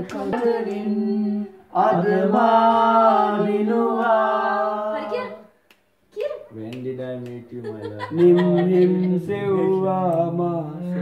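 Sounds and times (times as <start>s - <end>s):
man singing unaccompanied: 6.5s - 11.0s.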